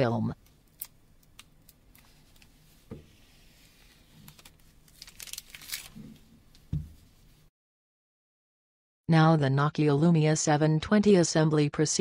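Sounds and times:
plastic film peeling and crinkling: 0.5s - 6.7s
phone thump on table: 6.7s - 7.0s.

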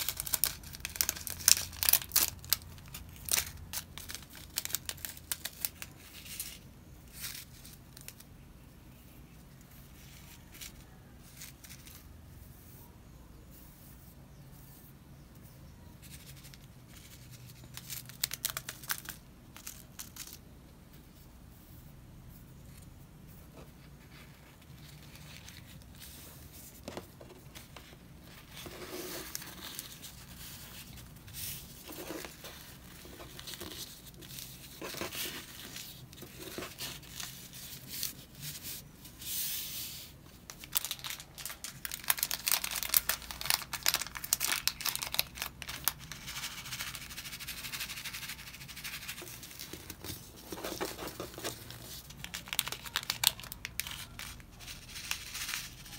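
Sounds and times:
paper and plastic rustling: 23.7s - 55.9s.

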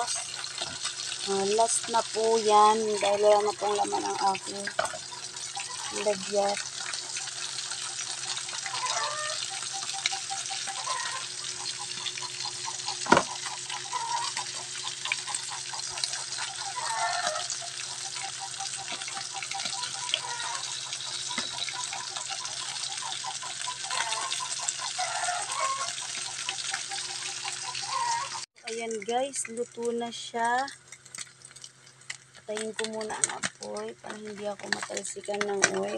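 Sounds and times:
fish frying in oil: 0.0s - 35.9s.

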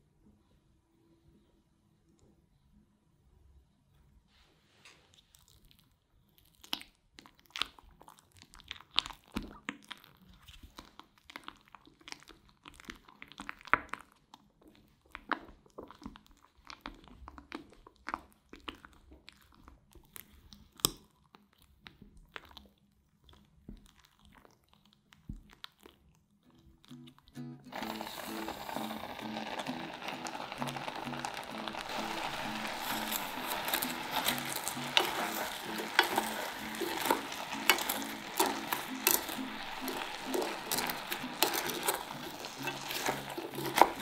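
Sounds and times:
spatula squelching wet mixture: 6.4s - 26.4s, 31.8s - 44.0s
spatula scraping glass bowl: 27.7s - 44.0s.

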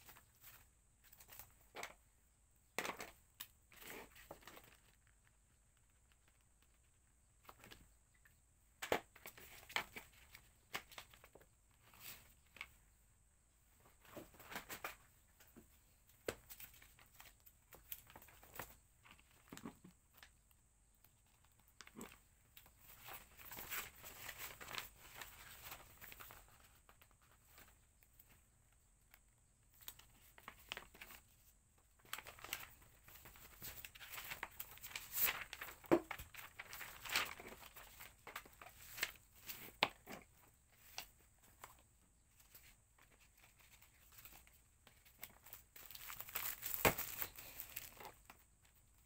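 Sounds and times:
packaging rustling and crinkling: 32.0s - 48.8s.

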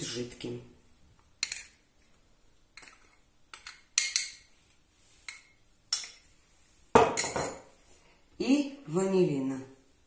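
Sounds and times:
spoon clinking glass bowls: 2.8s - 4.5s, 5.2s - 6.4s.

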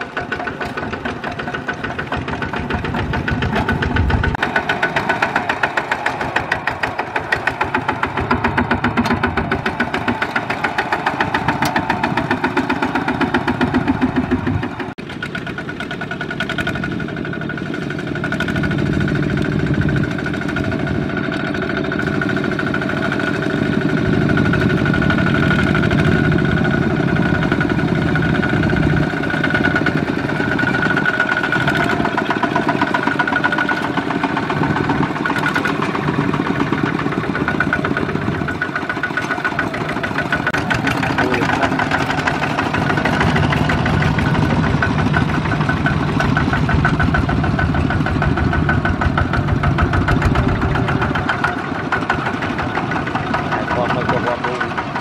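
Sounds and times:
diesel tractor engines chugging: 0.0s - 55.0s.

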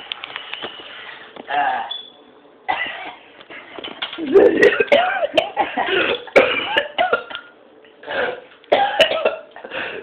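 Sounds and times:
person coughing hard: 2.7s - 3.2s, 4.3s - 7.4s, 8.0s - 10.0s.

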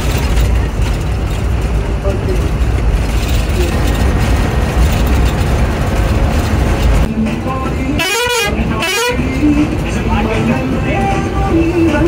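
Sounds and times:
bus engine and tyres rumbling: 0.0s - 12.0s
vehicle horn with wavering pitch: 7.9s - 9.4s.

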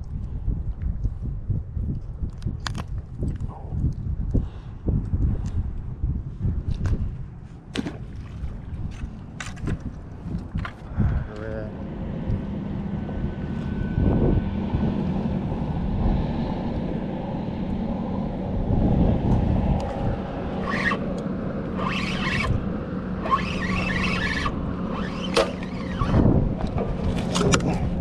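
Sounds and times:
wind rumbling on microphone: 0.0s - 28.0s
low engine hum: 7.2s - 28.0s.

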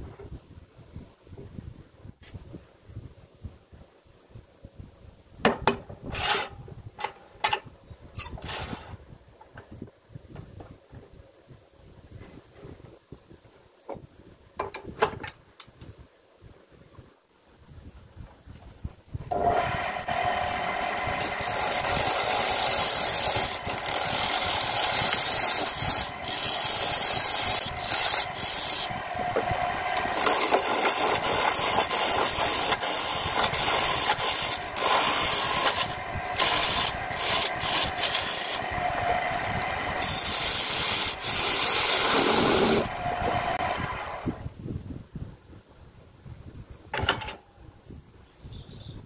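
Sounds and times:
chisel scraping wood on lathe: 6.1s - 6.5s, 19.3s - 38.7s, 40.0s - 43.7s
lathe motor hum: 19.3s - 44.4s.

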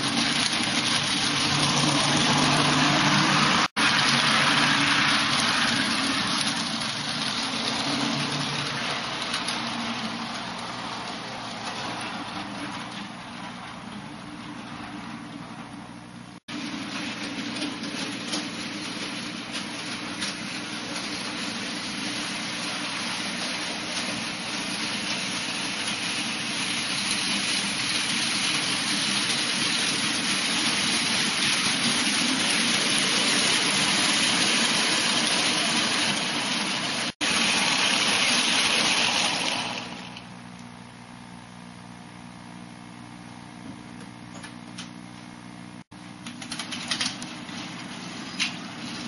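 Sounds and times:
model train rumbling on track: 0.0s - 40.3s, 46.2s - 49.0s.

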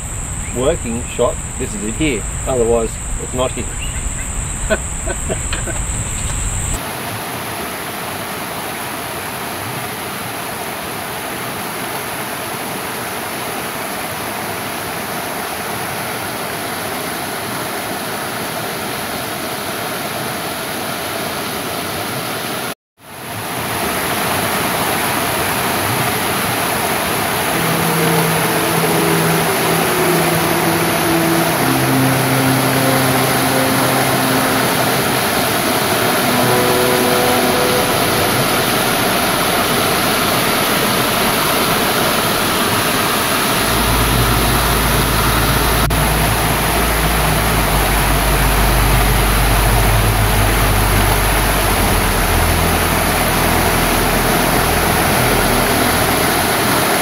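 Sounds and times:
water rushing over a waterfall: 6.8s - 29.9s.

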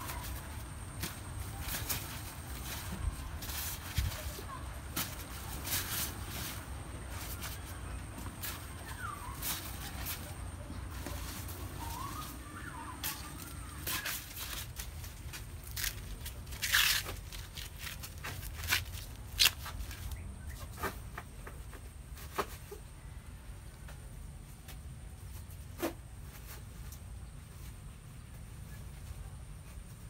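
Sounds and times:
corn husks rustling and tearing: 0.0s - 22.8s.

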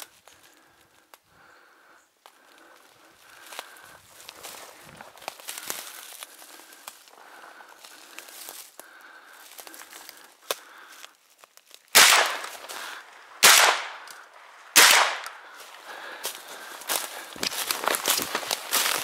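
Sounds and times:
footsteps through dry leaves: 3.2s - 13.1s, 15.4s - 19.0s
shotgun shots with echo: 12.0s - 12.6s, 13.3s - 14.1s, 14.7s - 15.4s.

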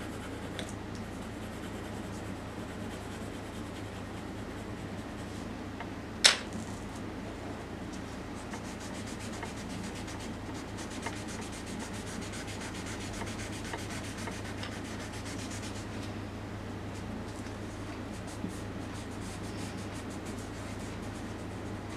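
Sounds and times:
fingers rubbing on paper: 0.0s - 5.2s, 8.4s - 15.9s, 18.1s - 21.8s.

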